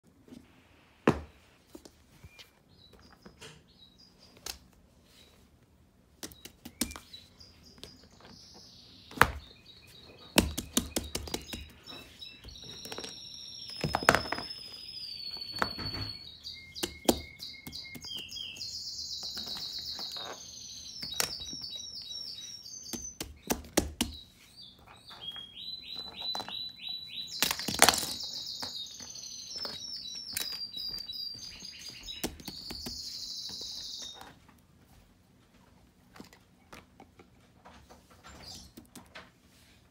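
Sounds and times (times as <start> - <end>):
bird chirping and trilling: 6.3 - 34.4.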